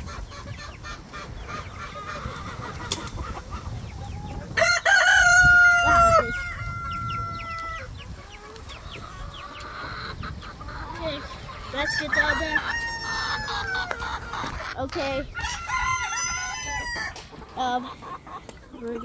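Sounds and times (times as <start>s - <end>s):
chickens clucking: 0.0s - 19.0s
rooster crowing: 4.6s - 7.8s, 15.4s - 17.2s.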